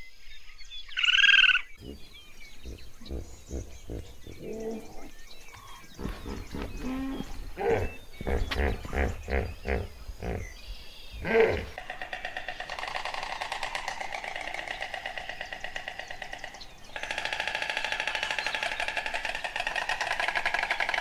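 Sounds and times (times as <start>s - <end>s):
hippopotamus grunt: 1.8s - 11.9s.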